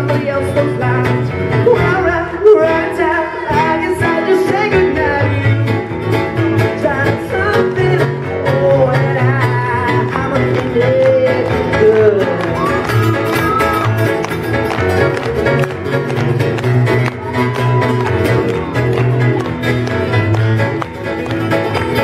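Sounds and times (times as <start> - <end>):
man singing into microphone: 0.0 - 13.9
low bass line: 0.0 - 22.0
strummed acoustic guitar: 0.0 - 22.0.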